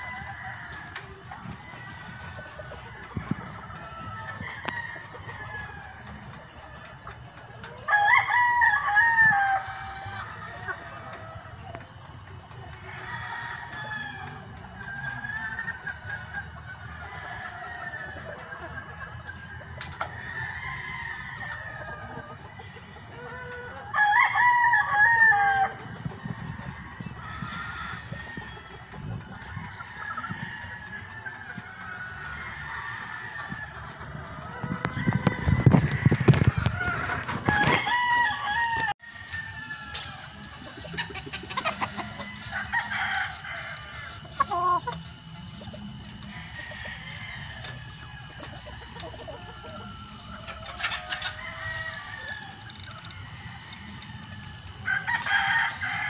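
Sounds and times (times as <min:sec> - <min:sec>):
rooster crowing: 0:00.0 - 0:06.5, 0:07.8 - 0:11.8, 0:12.7 - 0:40.8, 0:41.5 - 0:56.0
chicken calls: 0:00.0 - 0:56.0
hens clucking softly: 0:39.9 - 0:54.4.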